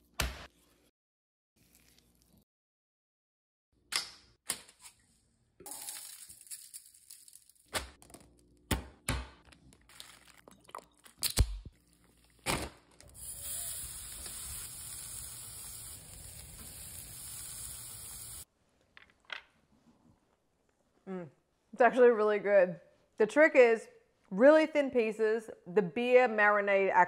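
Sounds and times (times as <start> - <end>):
meat sizzling over charcoal: 13.1 - 18.5.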